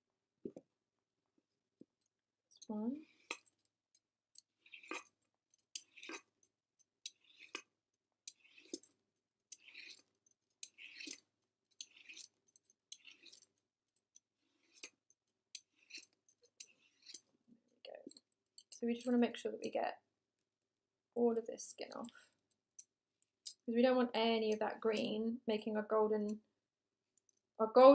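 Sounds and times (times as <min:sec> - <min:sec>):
blade scraping courgette skin: 0:10.6 - 0:11.2.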